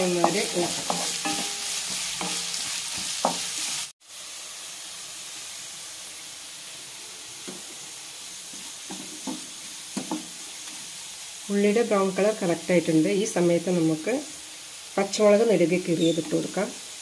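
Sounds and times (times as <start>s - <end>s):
wooden spatula scraping pan: 0.0s - 3.8s
onions sizzling in oil: 0.0s - 17.0s.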